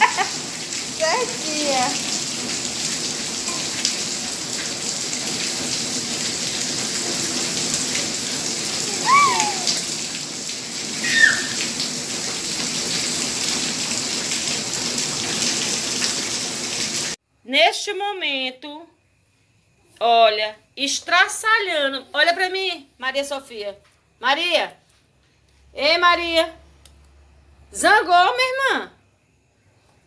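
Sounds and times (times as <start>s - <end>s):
rain on concrete: 0.0s - 17.2s
short high cries: 8.8s - 9.9s, 11.0s - 11.7s.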